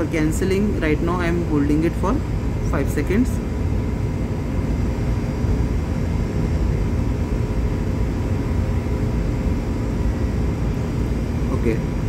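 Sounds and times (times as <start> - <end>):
faint steady hums: 0.0 - 12.0.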